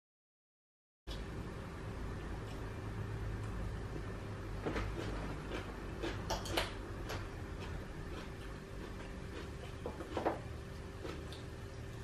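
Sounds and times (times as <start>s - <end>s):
steady low hum: 1.1s - 12.0s
chewing: 4.6s - 12.0s
fork clicking on crab shells: 6.0s - 10.4s.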